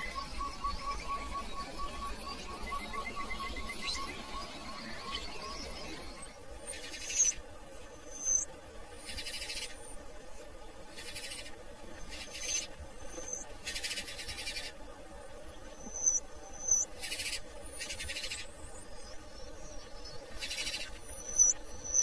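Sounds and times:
songbird chirps: 0:00.0 - 0:22.0
raspy buzzing bird calls: 0:08.1 - 0:09.9, 0:10.9 - 0:14.8, 0:15.8 - 0:18.5, 0:20.2 - 0:22.0.

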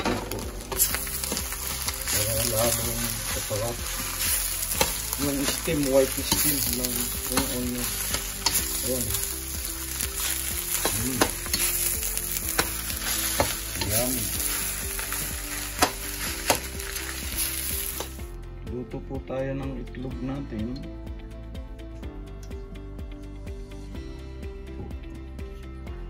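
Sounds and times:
rice sizzling in a wok: 0:00.0 - 0:18.2
spatula knocking and scraping pan: 0:06.3 - 0:08.7.

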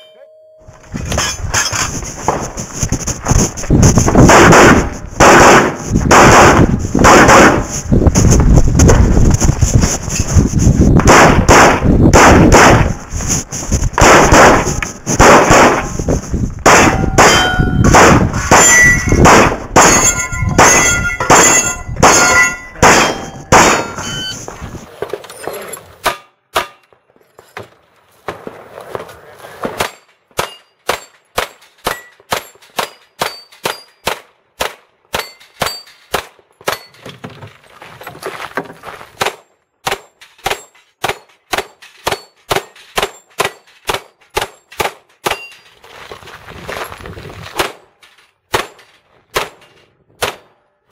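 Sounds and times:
pistol shots: 0:04.2 - 0:07.7, 0:11.0 - 0:13.0, 0:14.0 - 0:15.9, 0:16.6 - 0:24.0
steel targets ringing: 0:16.8 - 0:24.5, 0:31.8 - 0:34.0.

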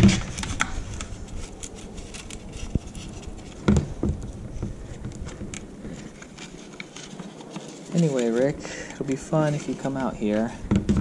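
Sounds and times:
helmet handling rustling: 0:00.0 - 0:11.0
dull bumps: 0:03.5 - 0:06.2, 0:10.3 - 0:11.0.

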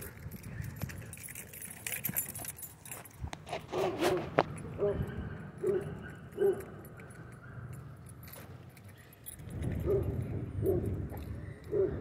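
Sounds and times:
low traffic rumble: 0:00.0 - 0:12.0
metallic jingling: 0:00.0 - 0:12.0
distant dogs barking: 0:03.8 - 0:08.0, 0:09.8 - 0:12.0.

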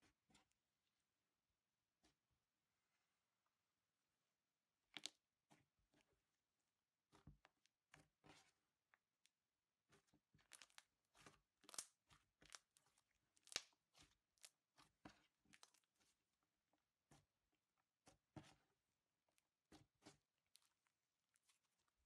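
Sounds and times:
beaded slime crackling: 0:11.6 - 0:13.8.

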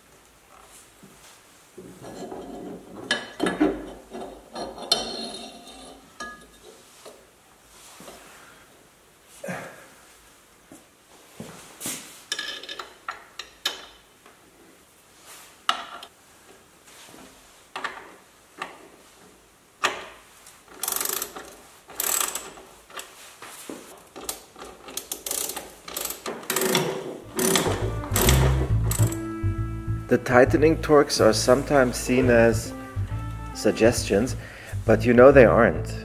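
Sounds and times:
metal tools clinking: 0:03.1 - 0:06.7
ratchet clicking: 0:20.8 - 0:22.6, 0:24.9 - 0:26.8, 0:27.4 - 0:29.2.

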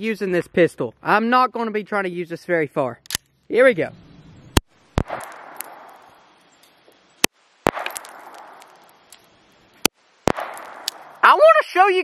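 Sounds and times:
pistol shots with echo: 0:05.0 - 0:06.2, 0:07.7 - 0:08.9, 0:10.3 - 0:11.2.

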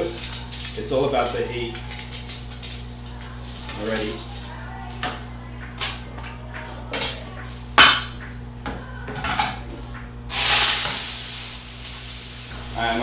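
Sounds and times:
noodles sizzling in frying pan: 0:00.0 - 0:05.2, 0:10.3 - 0:13.0
metal pans clanking: 0:00.0 - 0:08.2, 0:09.1 - 0:09.9.

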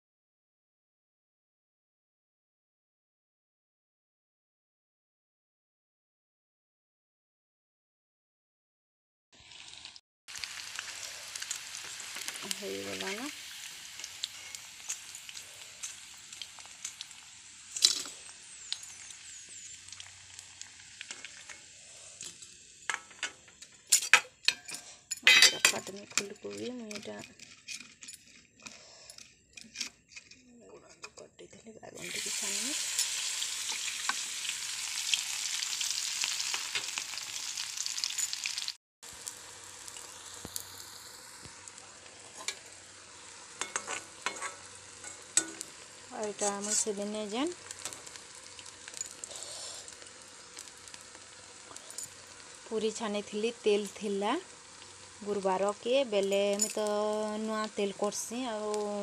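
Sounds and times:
food deep-frying in oil: 0:09.4 - 0:27.3, 0:31.9 - 0:59.0.

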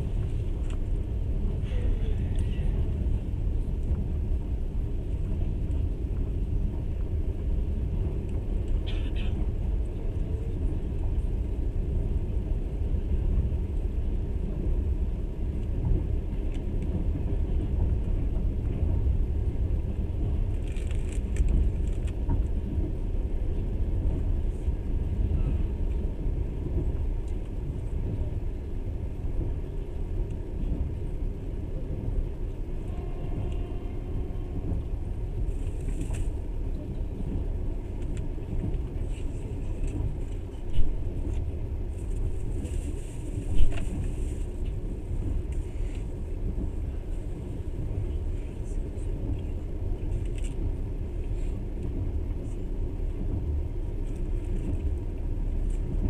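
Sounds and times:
train carriage rumble: 0:00.0 - 0:56.0.

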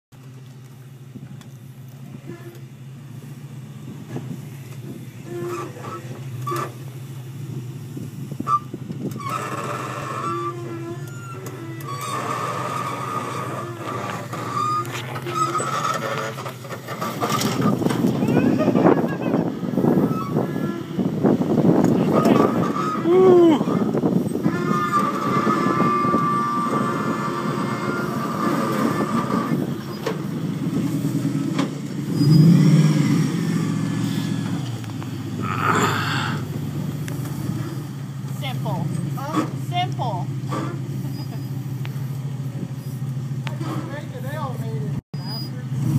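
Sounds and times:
off-road vehicle engine running: 0:00.1 - 0:45.9
high-pitched squeal: 0:08.4 - 0:19.1, 0:22.0 - 0:34.6.

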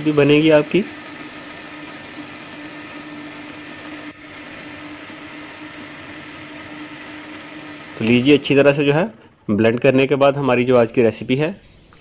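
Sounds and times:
blender running: 0:00.0 - 0:09.1.

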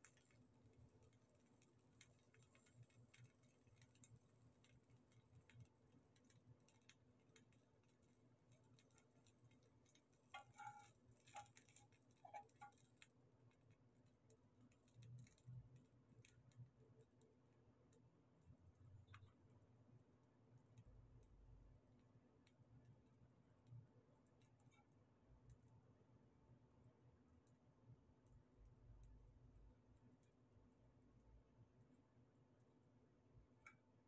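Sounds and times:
faint ticks: 0:00.0 - 0:25.9, 0:26.8 - 0:32.0, 0:33.4 - 0:34.0
metal spoon scraping frying pan: 0:10.3 - 0:12.8.

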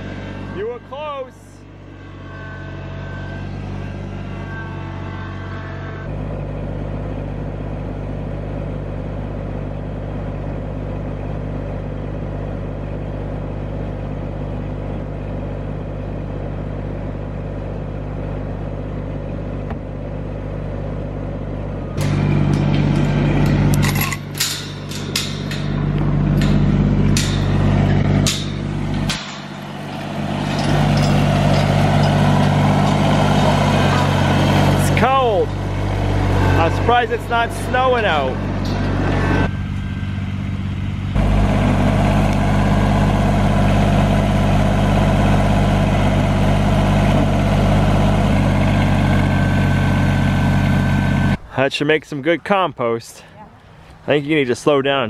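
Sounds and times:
diesel tractor engine: 0:00.0 - 0:55.0
sharp clanks and knocks: 0:22.0 - 0:35.6, 0:36.7 - 0:39.5.

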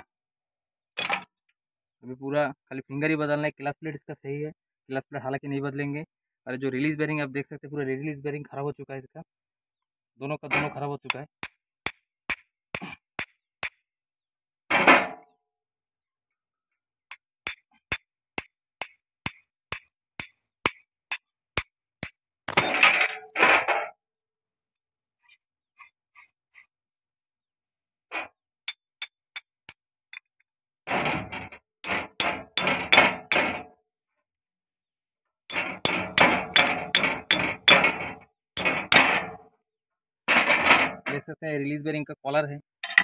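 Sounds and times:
small hammer striking metal: 0:11.1 - 0:13.8, 0:17.1 - 0:23.6, 0:31.8 - 0:33.6, 0:35.5 - 0:38.0.

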